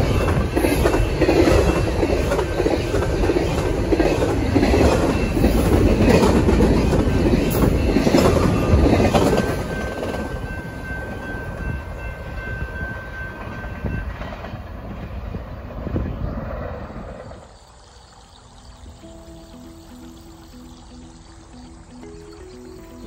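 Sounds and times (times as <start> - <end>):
freight train rumbling and clattering: 0.0 - 17.2.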